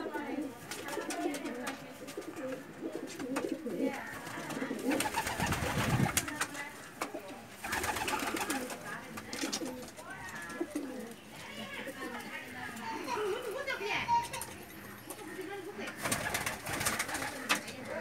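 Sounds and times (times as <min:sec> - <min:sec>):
pigeons cooing: 0:00.0 - 0:12.3
wing flapping and scuffling: 0:00.6 - 0:13.1, 0:14.1 - 0:18.0.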